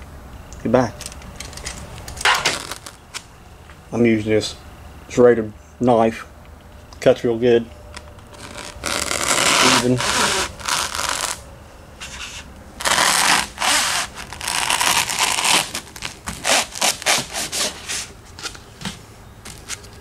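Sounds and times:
knife sawing through foam: 0:09.0 - 0:11.4, 0:16.5 - 0:18.1.

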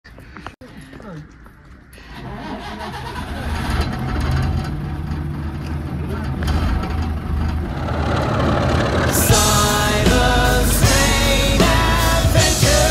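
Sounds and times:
people talking: 0:00.6 - 0:01.3, 0:06.0 - 0:06.8
diesel railcar engine throbbing: 0:03.2 - 0:12.9.

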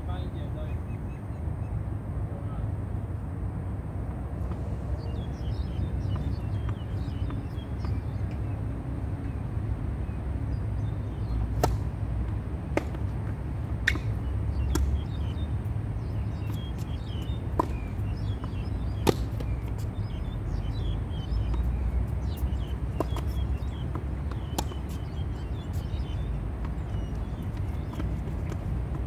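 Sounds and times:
birds chirping: 0:00.0 - 0:02.7, 0:04.4 - 0:29.0
balls bouncing on hard court: 0:05.7 - 0:08.5, 0:11.5 - 0:15.1, 0:16.3 - 0:20.0, 0:20.8 - 0:29.0
tennis balls popping off rackets: 0:11.2 - 0:15.1, 0:16.0 - 0:29.0.

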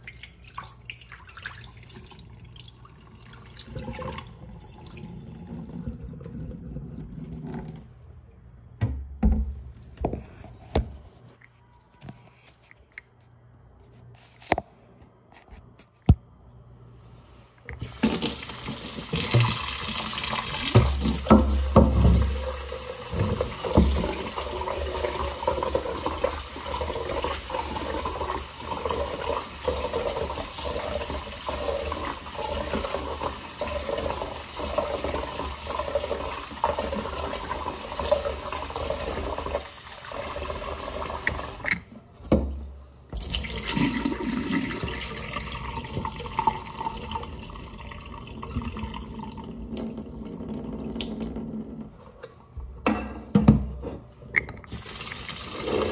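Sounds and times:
water poured into sink: 0:00.0 - 0:08.0, 0:17.8 - 0:41.7, 0:43.2 - 0:52.0, 0:54.7 - 0:55.9
tap water running into pot: 0:17.8 - 0:41.8, 0:43.2 - 0:51.9, 0:54.7 - 0:55.9.

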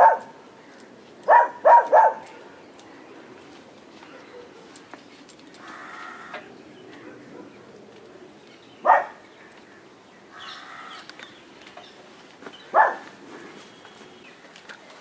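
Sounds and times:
bird calling: 0:08.8 - 0:14.4.

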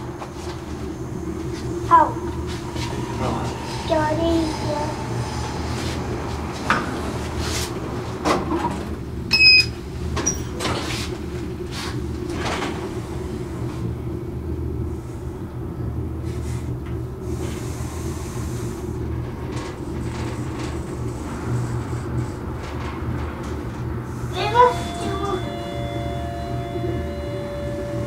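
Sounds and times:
elevator humming: 0:00.0 - 0:16.2, 0:17.0 - 0:28.0.

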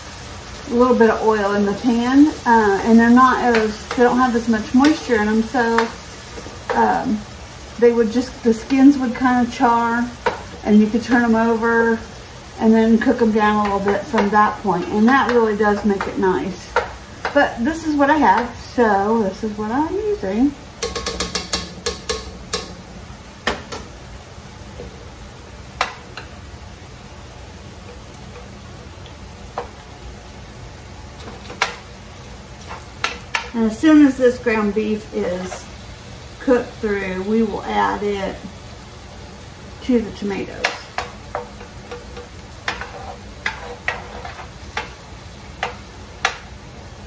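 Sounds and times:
skillets sizzling: 0:00.0 - 0:47.0
utensils knocking on skillets: 0:00.7 - 0:07.2, 0:07.8 - 0:12.0, 0:12.6 - 0:18.8, 0:20.8 - 0:24.0, 0:25.8 - 0:26.4, 0:29.5 - 0:29.8, 0:31.2 - 0:31.9, 0:32.6 - 0:35.7, 0:40.2 - 0:46.6
spatula scraping a skillet: 0:40.6 - 0:46.5.

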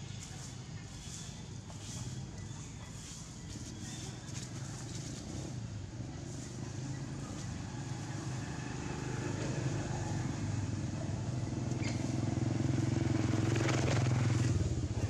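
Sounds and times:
small engine running: 0:06.8 - 0:15.0.

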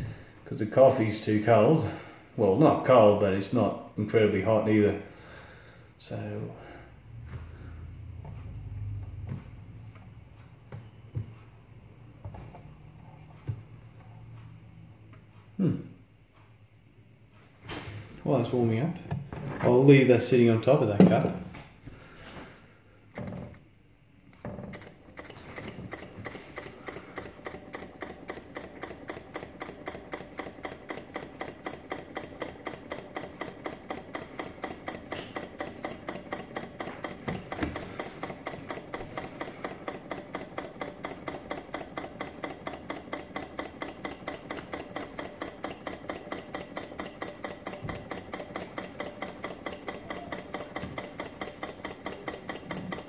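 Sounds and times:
small engine flywheel clicking: 0:24.7 - 0:53.0.

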